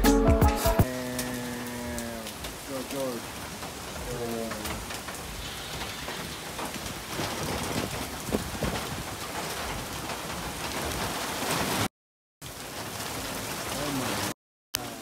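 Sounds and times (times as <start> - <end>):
heavy rain on wet street: 0.8 - 15.0
raindrop ticks: 0.9 - 11.7.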